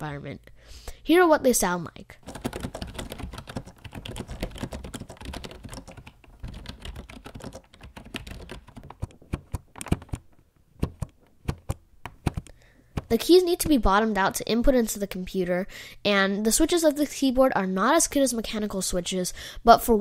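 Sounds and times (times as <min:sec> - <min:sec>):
keyboard typing: 0:02.2 - 0:13.2.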